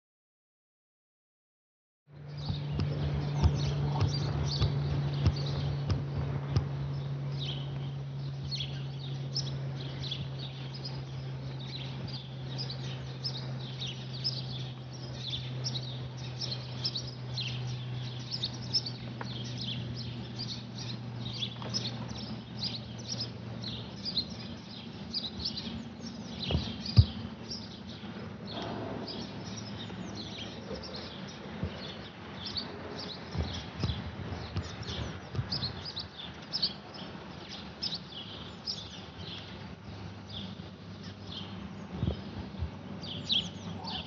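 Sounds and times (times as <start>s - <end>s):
propeller aircraft droning overhead: 2.1s - 44.0s
small birds chirping: 2.2s - 44.0s.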